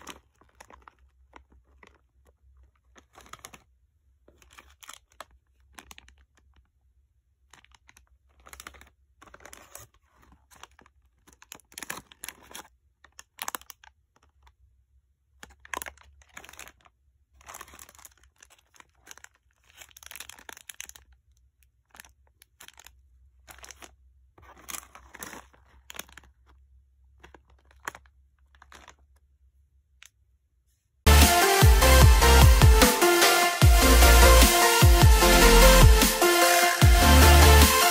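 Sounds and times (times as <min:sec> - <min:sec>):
plastic wrappers crinkling: 0:00.0 - 0:29.4.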